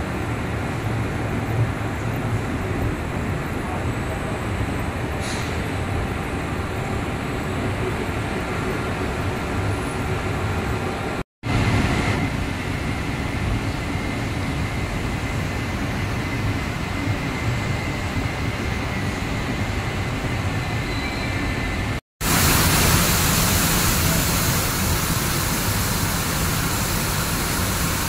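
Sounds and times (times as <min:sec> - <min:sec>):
production line machine noise: 0:21.8 - 0:28.0.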